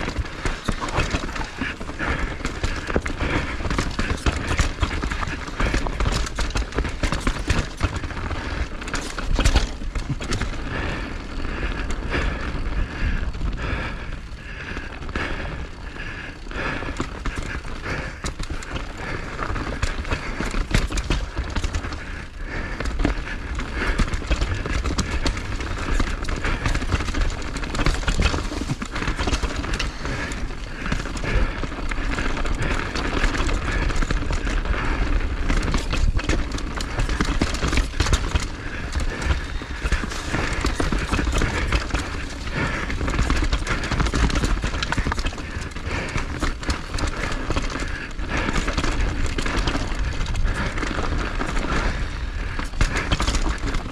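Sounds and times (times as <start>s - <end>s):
wind rumbling on microphone: 0.0s - 6.4s.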